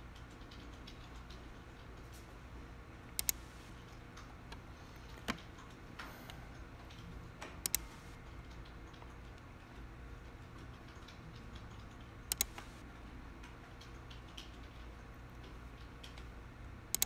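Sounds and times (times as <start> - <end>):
low steady hum: 0.0 - 17.0
sharp clicks: 3.1 - 5.8, 6.9 - 9.4, 10.5 - 12.9.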